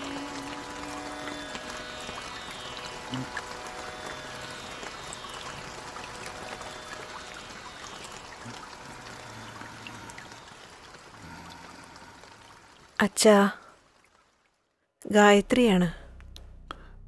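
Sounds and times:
rain hissing: 0.0s - 14.2s
light drips: 0.0s - 14.9s.

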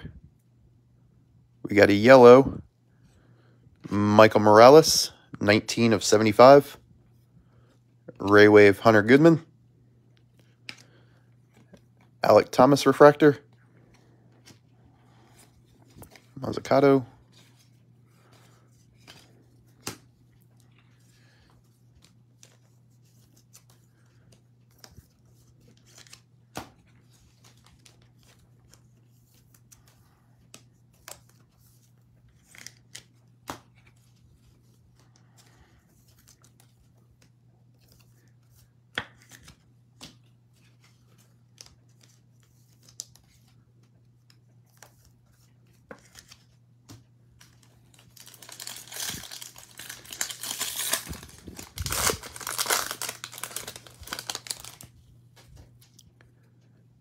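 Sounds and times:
cards tapping and rustling: 21.5s - 34.2s, 35.0s - 56.0s.

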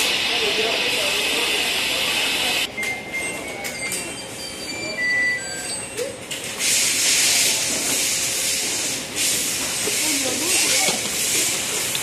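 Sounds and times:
compressed air hissing: 6.6s - 11.9s.

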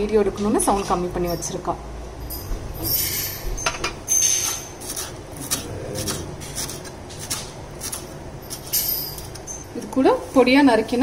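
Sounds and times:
knife chopping on wooden board: 4.8s - 8.7s.

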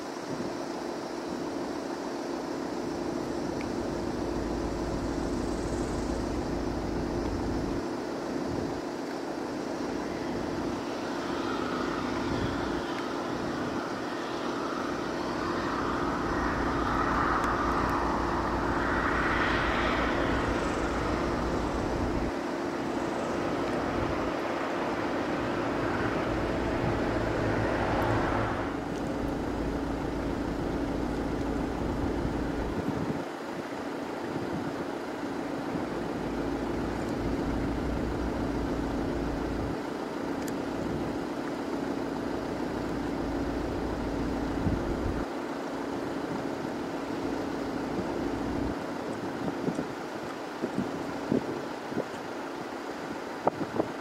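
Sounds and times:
turboprop engine drone: 0.0s - 54.0s
wind rumbling on microphone: 4.2s - 35.0s, 43.9s - 45.3s, 47.8s - 54.0s.

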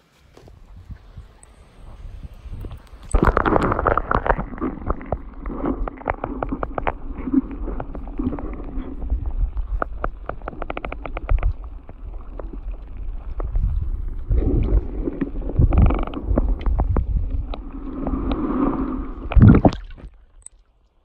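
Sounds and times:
low rumbling underwater noise: 0.6s - 20.5s
sharp underwater clicks: 2.5s - 13.7s, 14.4s - 18.5s.

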